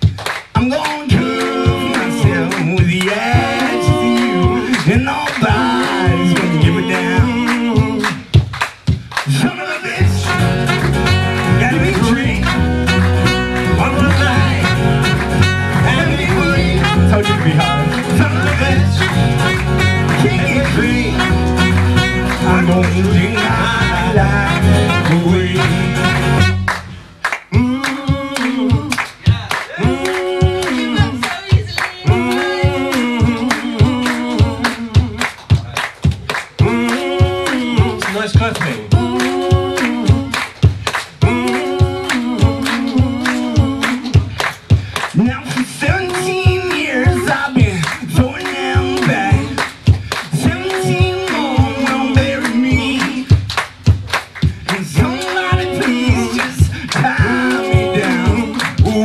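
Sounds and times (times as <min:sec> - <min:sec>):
acoustic guitar: 0:00.0 - 0:59.0
person singing: 0:00.6 - 0:08.3, 0:09.3 - 0:26.6, 0:27.4 - 0:35.8, 0:36.6 - 0:40.5, 0:41.2 - 0:44.4, 0:45.2 - 0:53.4, 0:54.6 - 0:59.0
plucked double bass: 0:10.0 - 0:27.0
strummed acoustic guitar: 0:10.0 - 0:27.0
trumpet: 0:10.0 - 0:27.0.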